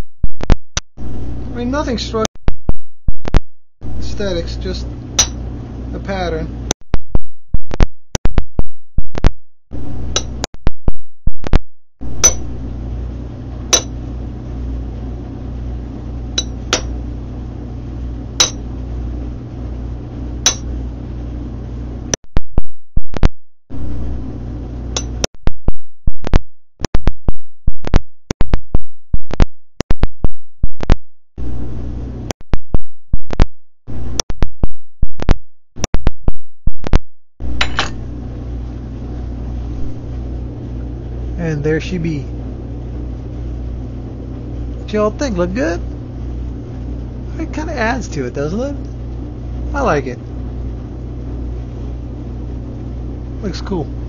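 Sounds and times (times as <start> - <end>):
hammer striking metal punch: 5.2 - 5.4, 12.2 - 12.5, 13.7 - 14.0, 16.4 - 17.0, 18.4 - 18.6, 20.5 - 20.7, 37.6 - 38.0.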